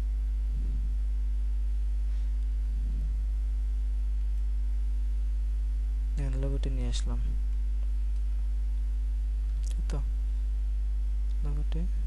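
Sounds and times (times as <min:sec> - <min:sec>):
electrical mains hum: 0:00.0 - 0:12.0
faint soft low sounds: 0:00.0 - 0:12.0.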